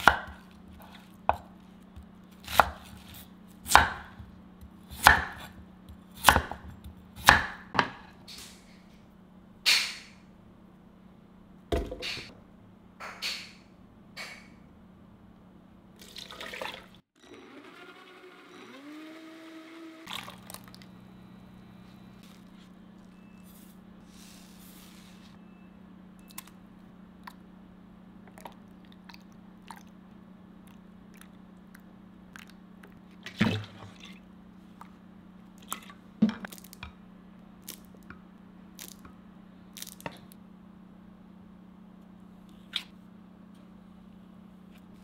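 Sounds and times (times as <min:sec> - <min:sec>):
water pouring into a jug: 0:16.0 - 0:17.0, 0:20.1 - 0:20.8
steady low hum: 0:20.0 - 0:45.0.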